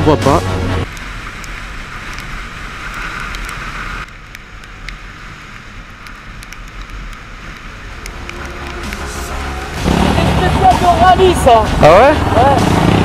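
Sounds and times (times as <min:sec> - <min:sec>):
wind rushing over camera: 0:00.8 - 0:09.0
faint ticks: 0:02.9 - 0:09.1.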